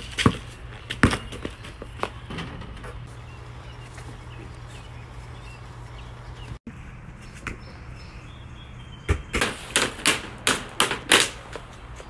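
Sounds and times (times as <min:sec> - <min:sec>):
hockey stick striking ball on asphalt: 0:00.0 - 0:02.2, 0:09.1 - 0:11.8.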